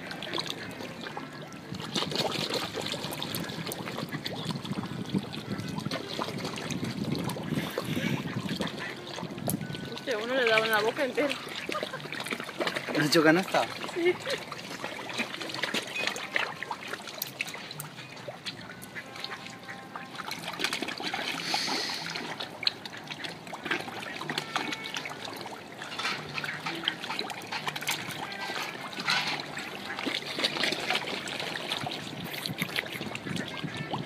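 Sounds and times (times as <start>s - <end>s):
fish splashing at water surface: 0.0s - 34.0s
fish mouths popping: 32.2s - 33.1s.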